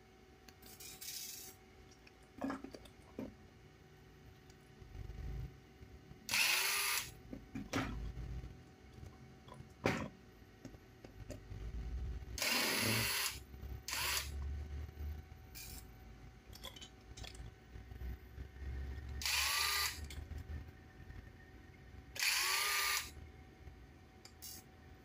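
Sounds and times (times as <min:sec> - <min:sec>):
electric screwdriver whirring: 0:06.3 - 0:07.1, 0:12.4 - 0:14.3, 0:19.2 - 0:20.0, 0:22.2 - 0:23.1.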